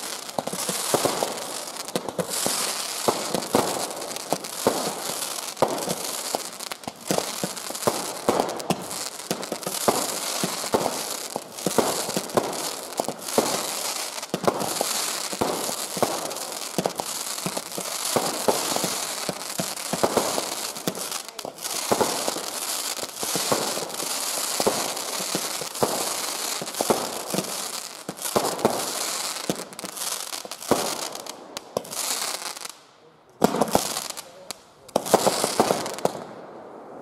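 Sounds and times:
fireworks launch pops and bangs: 0.0s - 32.8s, 33.4s - 36.4s
crackling hiss of burning fireworks: 0.0s - 37.0s.

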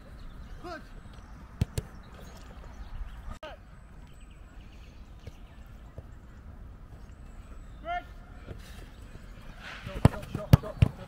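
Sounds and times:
distant shout: 7.7s - 8.5s.

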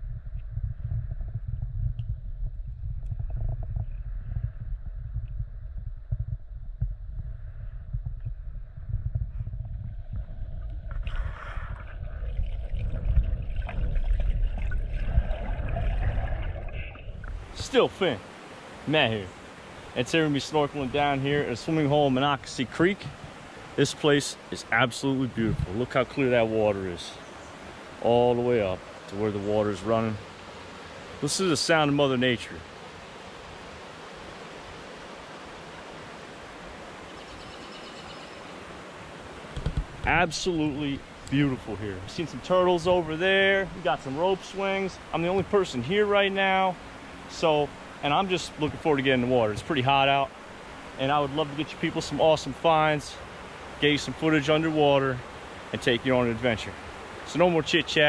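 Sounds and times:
heavy low rumble: 0.0s - 17.6s
water splashing: 9.6s - 27.0s
creek water gurgling and rushing: 9.6s - 58.0s.

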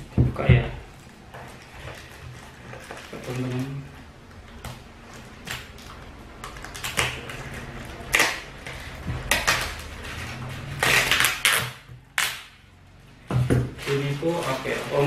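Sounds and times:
plastic wrapping crinkling: 0.9s - 12.5s, 13.7s - 15.0s.

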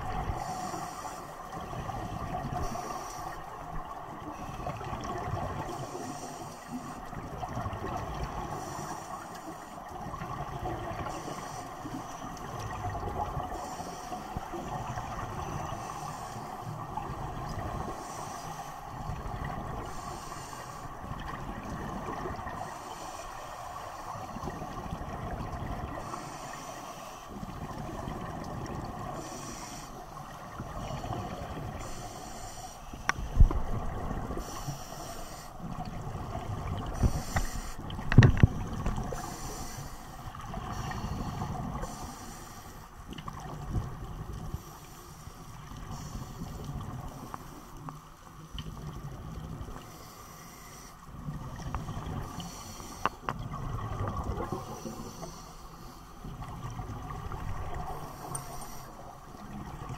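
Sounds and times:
exhaled bubbles rumbling: 0.0s - 0.6s, 3.6s - 5.8s, 7.2s - 8.6s, 33.0s - 34.6s, 35.6s - 39.3s, 53.3s - 55.2s, 56.3s - 58.2s
regulator hiss on inhale: 0.2s - 4.9s, 5.6s - 7.2s, 8.4s - 9.9s, 11.0s - 12.6s, 13.3s - 21.8s, 22.4s - 24.7s, 25.9s - 27.6s, 28.9s - 36.0s, 36.8s - 43.0s, 44.4s - 48.0s, 49.8s - 53.4s, 54.4s - 56.4s, 57.8s - 59.5s.

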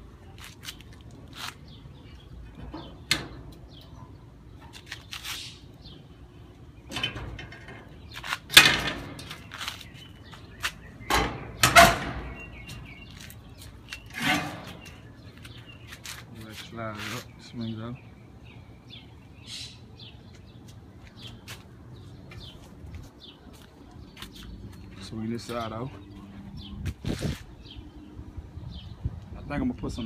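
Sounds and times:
metal parts knocking and clanking: 6.9s - 9.6s, 11.1s - 12.4s.

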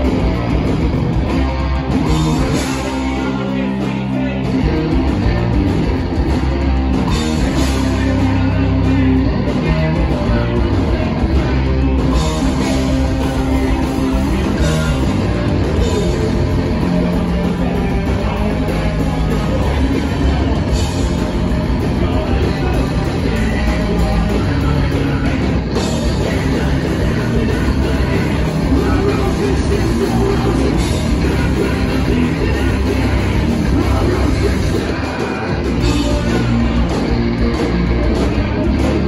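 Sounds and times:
live punk band playing: 0.0s - 39.0s.

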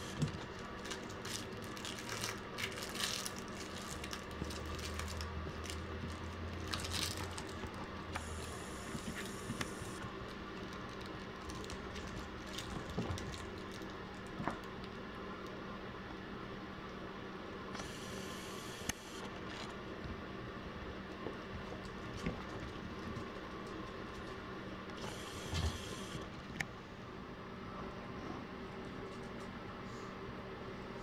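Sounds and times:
puppies rustling and tapping: 21.1s - 24.4s.

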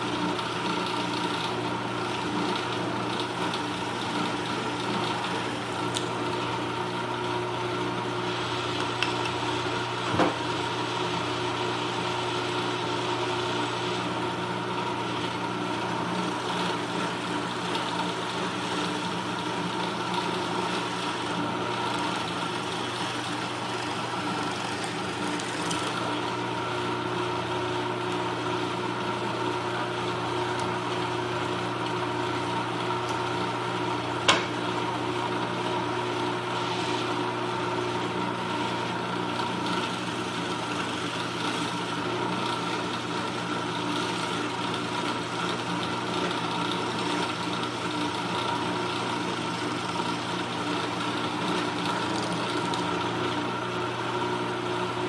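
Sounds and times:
drill press motor humming: 0.0s - 55.0s
drill bit cutting wood: 12.6s - 27.5s, 36.1s - 53.4s.

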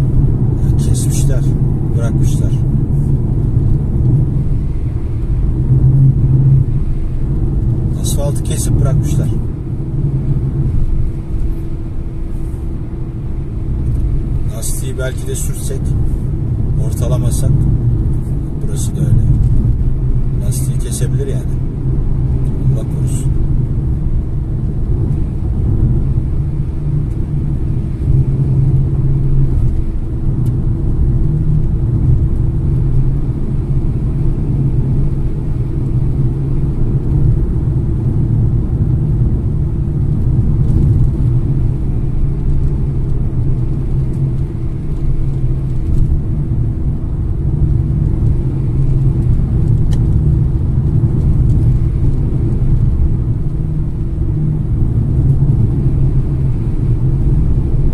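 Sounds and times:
car engine and tyre rumble: 0.0s - 57.9s.

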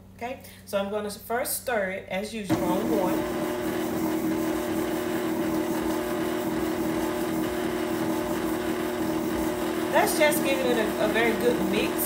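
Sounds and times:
electric mixer humming: 2.5s - 12.0s.

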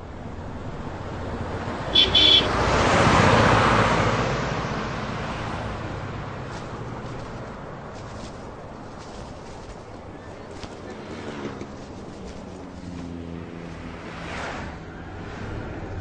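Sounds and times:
pickup truck passing at speed: 1.0s - 7.0s, 12.9s - 16.0s
car horn short beeps: 2.0s - 2.6s.

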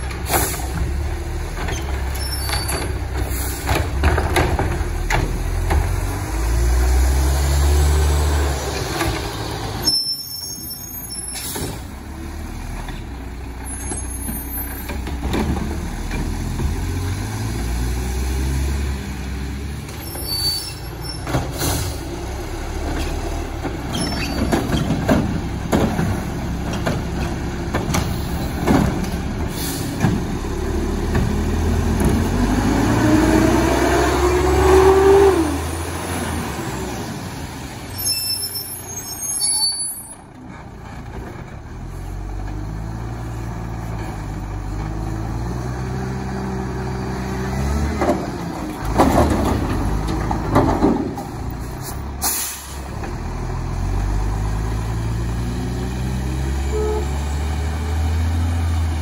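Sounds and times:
knocks and clanks of carts: 0.0s - 6.3s, 12.8s - 17.0s, 19.8s - 22.1s, 22.8s - 32.5s, 47.7s - 52.0s
air brakes hissing: 3.2s - 3.7s, 29.5s - 30.0s, 51.8s - 52.9s
engine revving: 5.7s - 9.8s, 30.4s - 37.0s.

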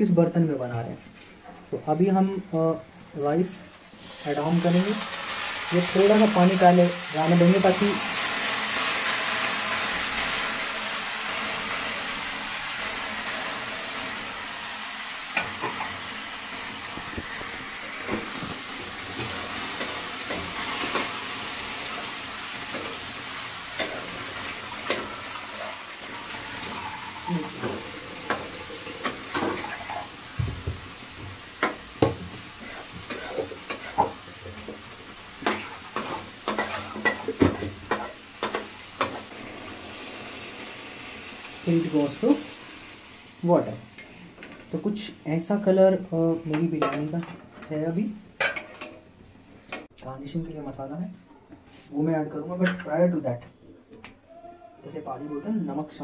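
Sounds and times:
rice sizzling in a pan: 1.0s - 49.9s
metal spoon scraping a pan: 32.6s - 34.2s, 35.4s - 39.3s.

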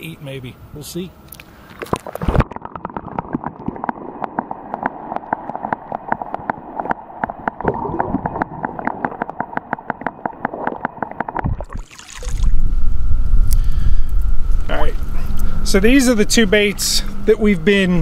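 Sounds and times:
water gurgling and lapping: 1.7s - 13.1s.

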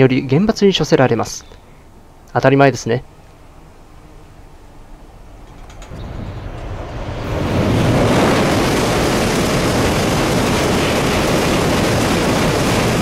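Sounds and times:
high-speed train crossing steel bridge: 3.3s - 13.0s.

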